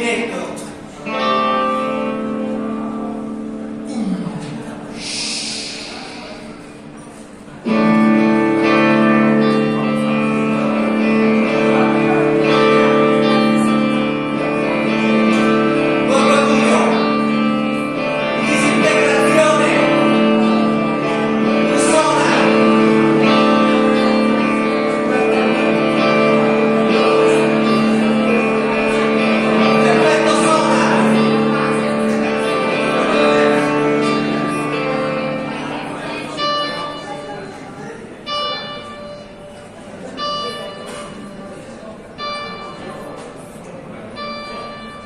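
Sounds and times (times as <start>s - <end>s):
live band with electric guitar: 0.5s - 45.0s
man singing: 18.2s - 24.1s.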